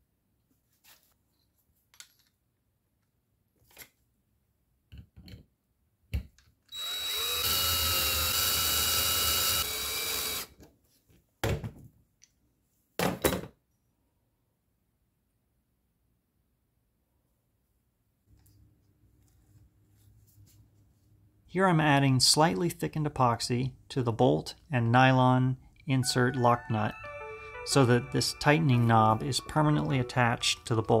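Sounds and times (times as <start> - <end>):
cordless drill whining: 6.7 - 10.6.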